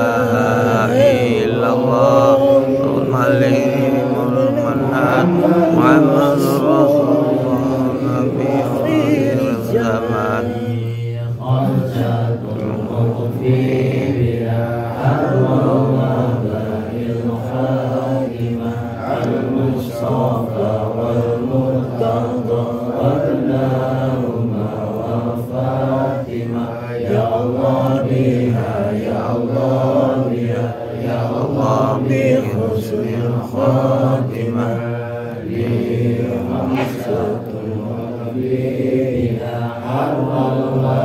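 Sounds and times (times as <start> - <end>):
men chanting in unison: 0.0 - 41.0.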